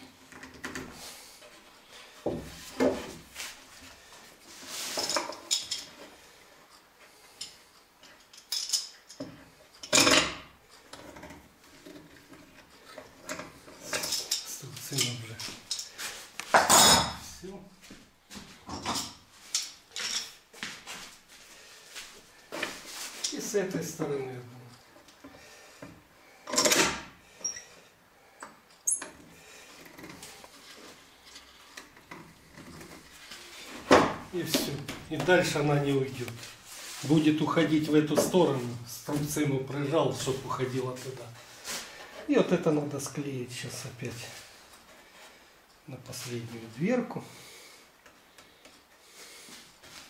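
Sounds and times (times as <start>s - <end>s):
metal clamps clinking and knocking: 7.4s - 12.0s, 26.5s - 27.6s
faint handling noises: 10.7s - 16.6s
clamp squeak: 27.4s - 27.7s.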